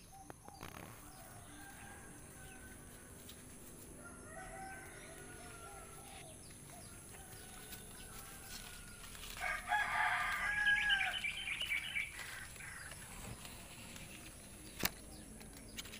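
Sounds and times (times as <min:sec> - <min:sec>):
distant rooster crowing: 0:00.8 - 0:13.0
rooster crowing: 0:01.2 - 0:03.2, 0:03.9 - 0:12.9.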